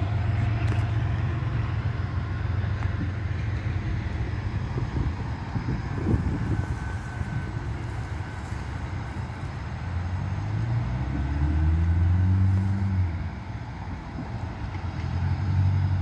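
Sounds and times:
wind rumbling on microphone: 0.0 - 11.1
vehicle engine passing: 0.0 - 16.0.

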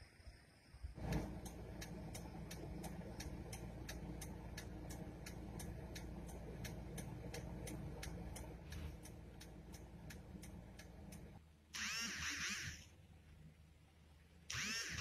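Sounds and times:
car cabin low rumble: 1.0 - 11.4
car indicator ticking: 1.0 - 11.4.

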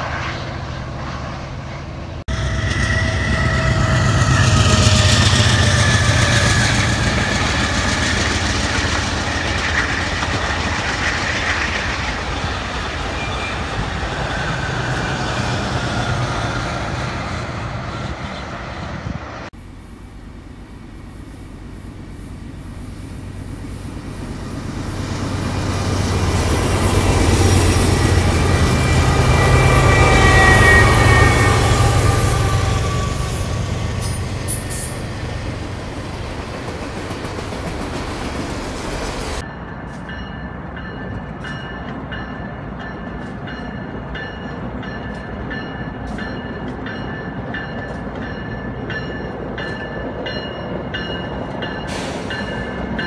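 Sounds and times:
diesel locomotive engine drone: 0.0 - 53.0
high wheel squeal: 1.5 - 11.5, 13.0 - 15.6, 19.6 - 35.3
passenger train wheels clacking: 1.9 - 18.8, 21.6 - 53.0.

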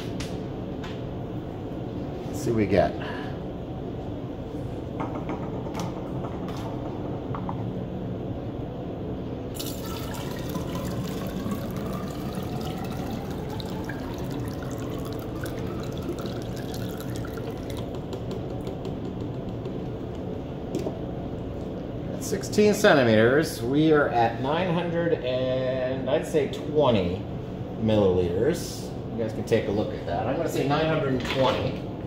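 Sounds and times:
water pouring into plastic cylinder: 9.6 - 18.9.

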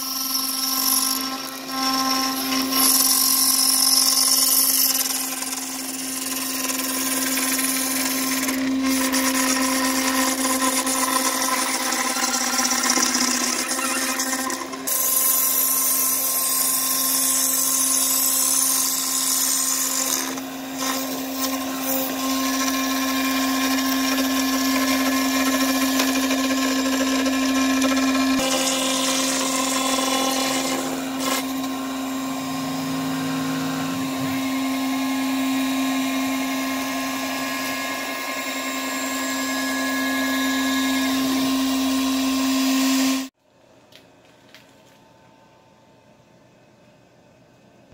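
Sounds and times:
cnc router spindle humming: 16.5 - 43.3
hissing cutting noise: 30.5 - 37.8.

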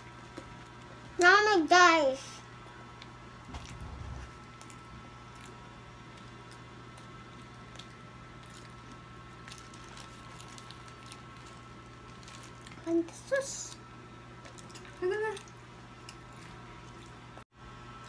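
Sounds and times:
steady low hum: 0.0 - 18.0
child chewing: 3.5 - 13.8, 14.4 - 17.4.

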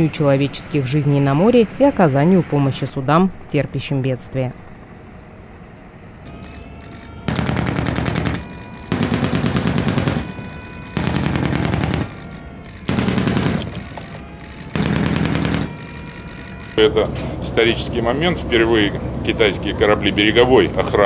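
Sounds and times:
machine gun bursts: 6.3 - 16.8.

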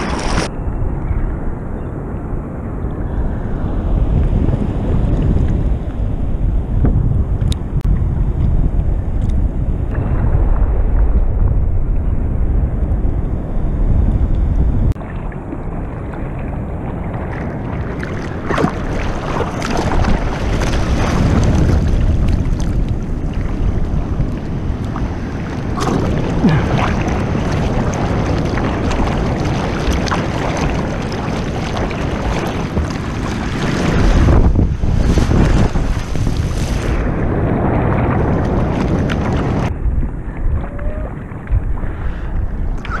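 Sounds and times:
water splashing: 0.0 - 0.5, 15.0 - 43.0
wind rumbling on microphone: 0.0 - 43.0.

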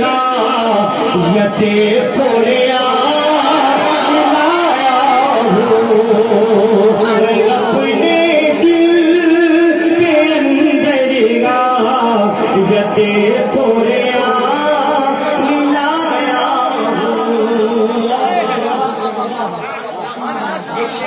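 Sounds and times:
man singing into a microphone: 0.0 - 21.0.

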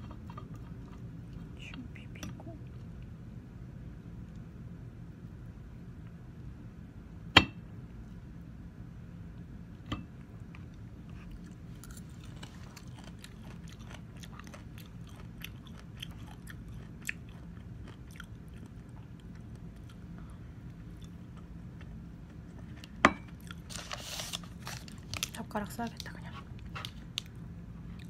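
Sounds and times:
crunchy chewing: 0.0 - 1.6, 10.5 - 28.0.

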